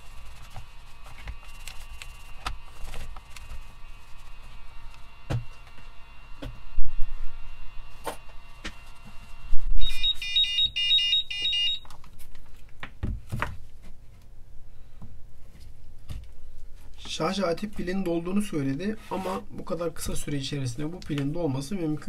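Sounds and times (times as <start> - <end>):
battery charger rapid beeps: 9.8 - 11.8.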